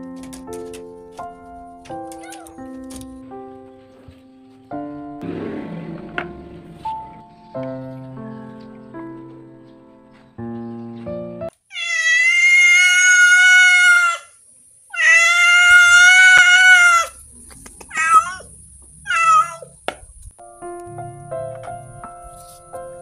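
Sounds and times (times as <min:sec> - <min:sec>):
piano-like background music: 0:00.0 - 0:11.6, 0:20.4 - 0:23.0
cat meowing: 0:02.2 - 0:02.6, 0:11.7 - 0:14.3, 0:14.9 - 0:17.2, 0:17.9 - 0:19.8.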